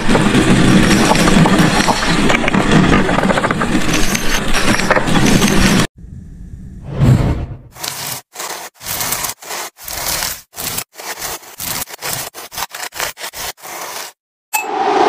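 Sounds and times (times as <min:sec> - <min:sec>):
knife sawing through rope: 0:07.7 - 0:14.2.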